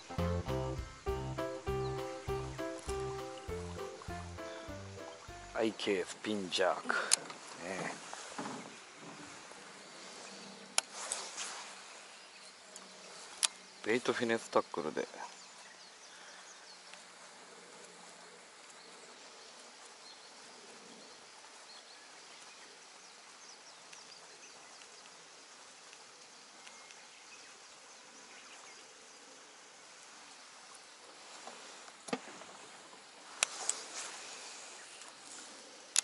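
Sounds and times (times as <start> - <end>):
faint high ticks or chirps: 0.0 - 5.7
faint steady hiss: 0.0 - 36.0.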